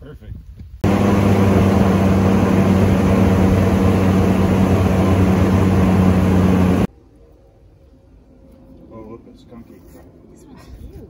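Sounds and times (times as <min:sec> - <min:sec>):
airboat engine drone: 0:00.8 - 0:06.9.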